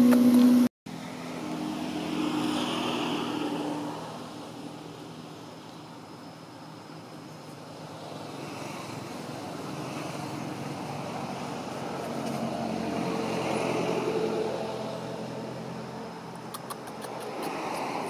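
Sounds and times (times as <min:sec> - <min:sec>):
vehicle engine passing: 0:00.0 - 0:05.5, 0:07.8 - 0:18.0
sharp clicks: 0:16.4 - 0:17.6.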